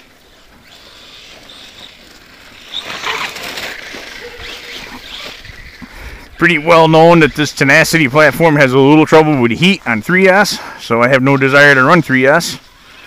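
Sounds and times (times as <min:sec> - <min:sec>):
rc car motor whine: 0:00.0 - 0:08.0, 0:12.6 - 0:13.0
tyres on grass and leaves: 0:00.0 - 0:13.0.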